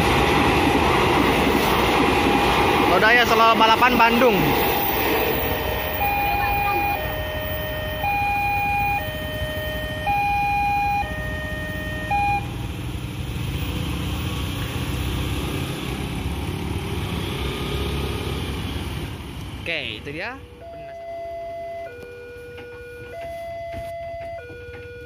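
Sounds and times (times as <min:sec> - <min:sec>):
two-tone crossing alarm: 0:01.6 - 0:12.7, 0:20.4 - 0:25.0
motorcycle engines revving: 0:05.5 - 0:19.9.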